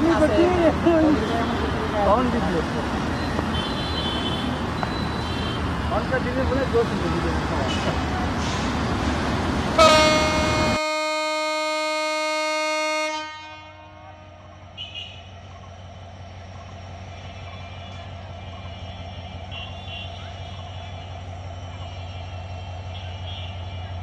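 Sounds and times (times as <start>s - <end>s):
distant diesel locomotive rumble: 0.0s - 24.0s
train wheel and rail noise: 0.0s - 24.0s
locomotive air horn: 9.8s - 15.3s.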